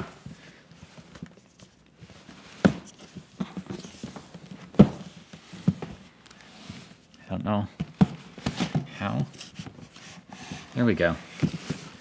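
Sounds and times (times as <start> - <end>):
cardboard scraping and rustling: 8.0 - 12.0.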